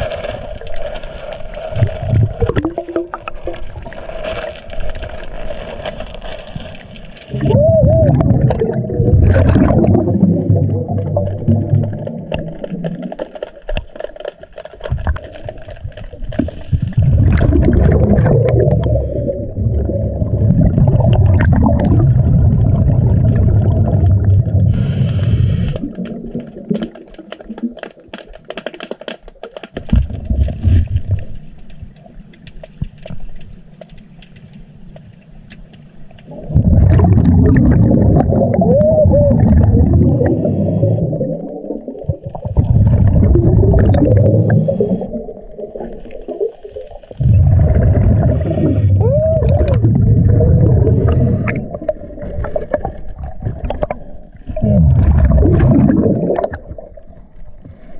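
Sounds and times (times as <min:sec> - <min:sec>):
diver exhaling bubbles: 0:01.7 - 0:04.0, 0:07.3 - 0:13.2, 0:16.3 - 0:26.8, 0:36.3 - 0:57.9
diver inhaling through regulator: 0:18.6 - 0:19.7, 0:24.6 - 0:26.0, 0:39.8 - 0:41.4, 0:44.0 - 0:45.4, 0:48.0 - 0:49.0, 0:50.7 - 0:51.8.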